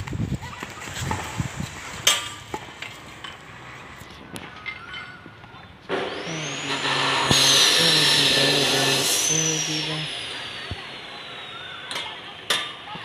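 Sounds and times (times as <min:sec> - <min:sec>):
motor vehicle passing: 0:05.9 - 0:12.8.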